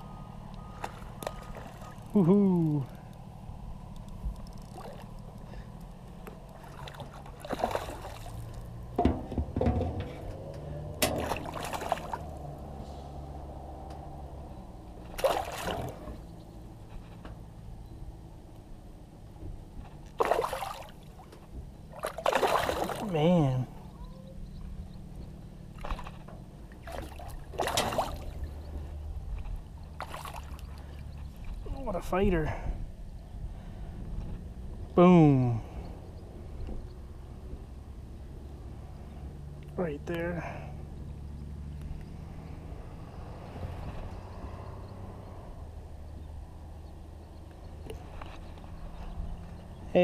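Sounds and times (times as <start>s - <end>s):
fish splashing in water: 0.7s - 2.1s, 6.6s - 8.7s, 11.0s - 12.4s, 15.1s - 16.1s, 20.2s - 21.3s, 21.9s - 23.1s, 26.8s - 28.5s, 30.0s - 30.8s.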